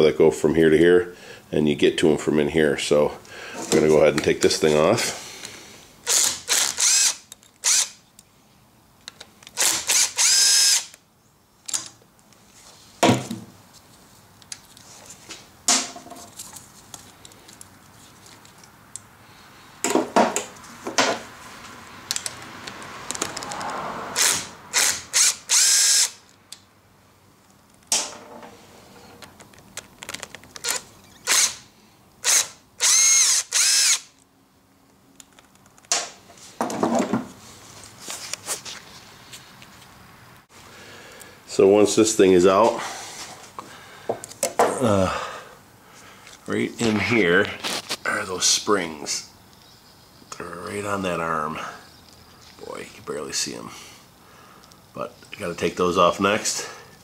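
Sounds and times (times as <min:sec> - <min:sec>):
power drill whining: 0:06.1 - 0:08.0, 0:09.6 - 0:11.0, 0:24.2 - 0:26.2, 0:30.6 - 0:31.6, 0:32.2 - 0:34.1.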